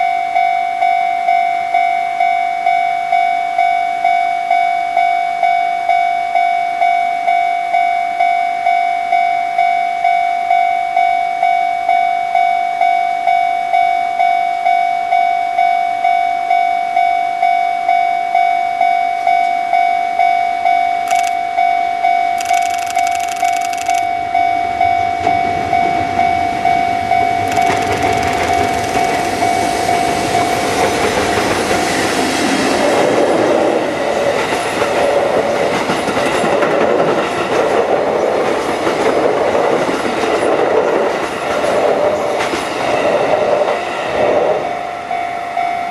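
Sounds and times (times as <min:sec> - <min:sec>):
freight train passing: 0:22.4 - 0:45.9.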